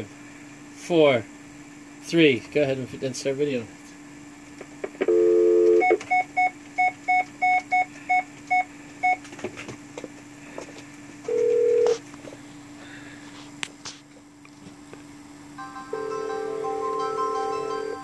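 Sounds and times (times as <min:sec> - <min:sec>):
telephone dial tone: 0:05.0 - 0:06.0, 0:11.3 - 0:12.0
long outgoing call tone: 0:05.1 - 0:06.5, 0:15.6 - 0:18.0.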